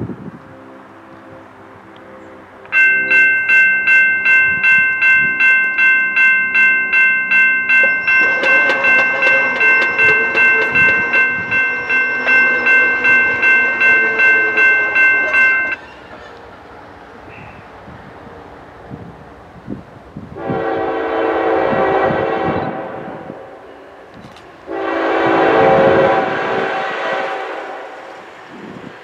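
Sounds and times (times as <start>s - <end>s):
electronic crossing bell ringing: 2.7s - 15.9s
distant train horn: 7.7s - 18.7s, 20.3s - 28.4s.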